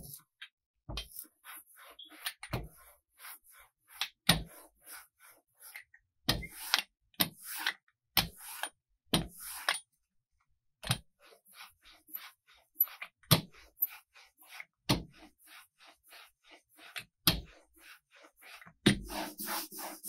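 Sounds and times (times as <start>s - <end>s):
roller hissing through ink: 17.8s - 20.0s.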